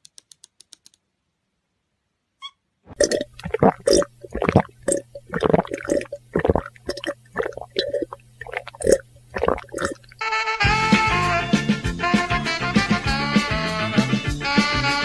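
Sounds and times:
water glugging from bottle: 2.9s - 10.2s
water splashing on ground: 3.0s - 10.2s.

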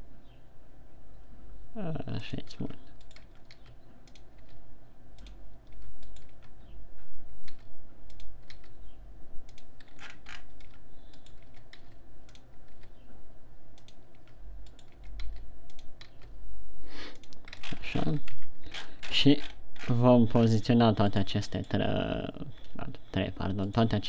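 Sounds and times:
low steady hum: 0.0s - 24.0s
keyboard and mouse clicking: 2.9s - 6.6s, 7.4s - 8.8s, 9.4s - 13.0s, 13.7s - 16.3s, 17.1s - 19.6s.

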